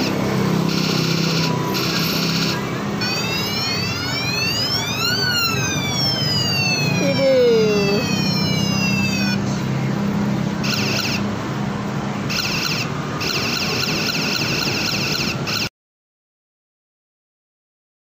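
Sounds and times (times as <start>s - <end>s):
siren bell wailing: 0.0s - 9.4s.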